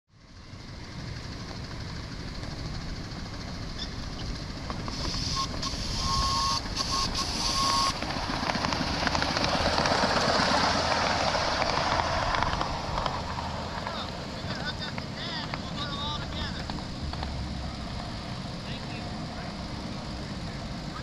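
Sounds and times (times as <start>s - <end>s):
steam engine rattling on rails: 0.4s - 21.0s
high tone with hiss: 4.9s - 8.0s.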